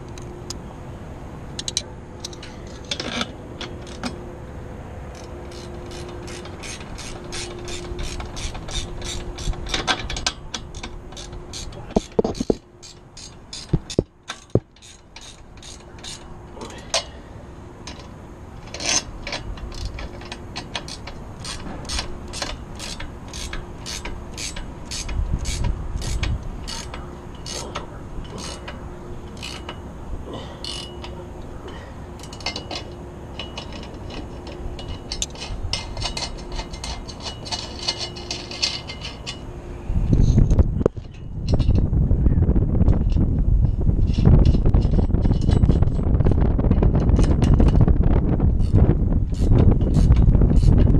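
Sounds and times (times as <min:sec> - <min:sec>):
ratchet wrench clicking: 0:05.1 - 0:17.1, 0:17.8 - 0:29.8, 0:30.6 - 0:31.2, 0:32.2 - 0:39.4, 0:44.1 - 0:46.0, 0:48.6 - 0:50.9.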